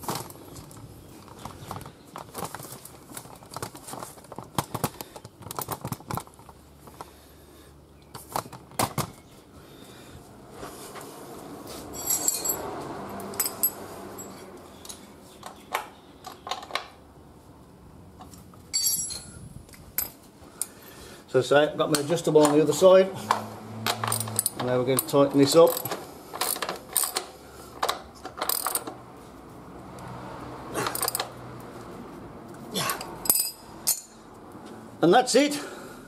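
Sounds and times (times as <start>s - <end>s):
tools scraping: 11.7s - 15.1s, 22.0s - 29.0s, 30.7s - 31.4s
metal tools clinking on concrete: 11.9s - 16.9s, 18.6s - 19.4s, 21.9s - 29.0s, 30.7s - 31.4s, 32.7s - 34.3s.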